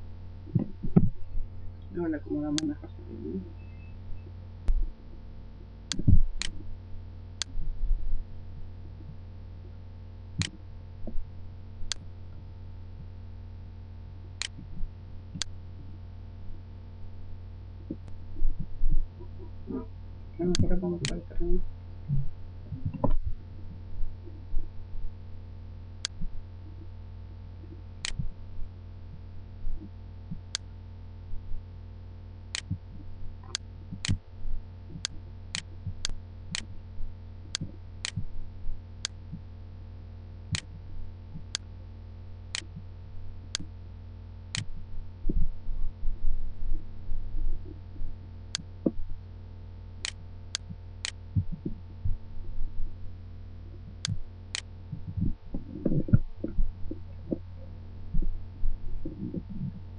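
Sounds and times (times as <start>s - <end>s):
dull low knocks: 0.0s - 3.3s, 17.3s - 25.5s, 50.6s - 59.9s
low electrical hum: 0.0s - 59.9s.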